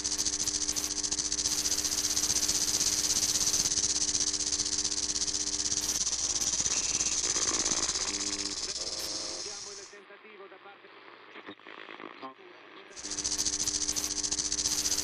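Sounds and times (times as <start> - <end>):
low hum: 0.0 - 9.9
loud steady static hiss: 0.0 - 10.1, 13.0 - 15.0.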